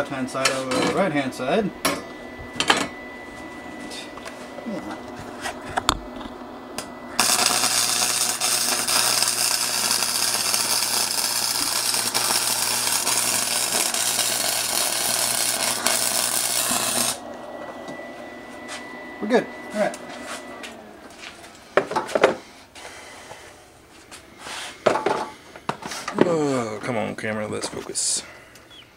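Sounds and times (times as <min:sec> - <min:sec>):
welding arc hissing crackle: 0:07.1 - 0:17.2.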